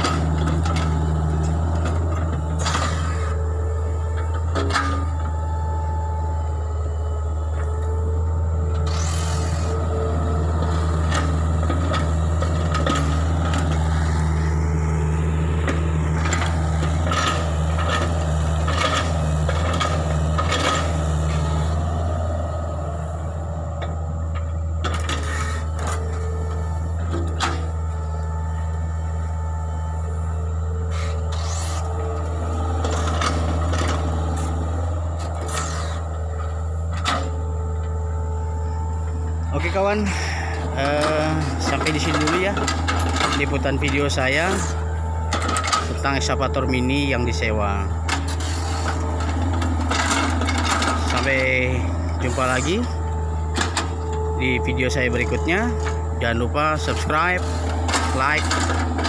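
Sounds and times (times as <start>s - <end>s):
diesel engine running: 0.0s - 59.0s
steady high tone: 53.9s - 57.4s.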